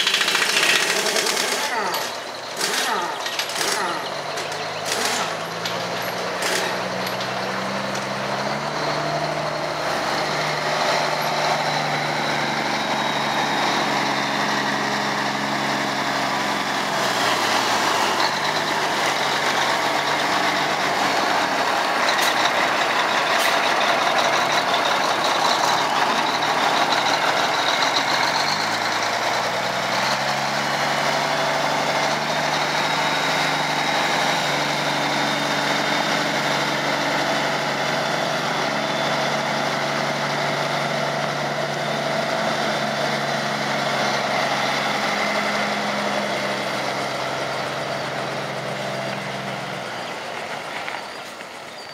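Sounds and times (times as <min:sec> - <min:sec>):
impact wrench: 0:00.0 - 0:07.2
truck diesel engine running: 0:00.0 - 0:51.9.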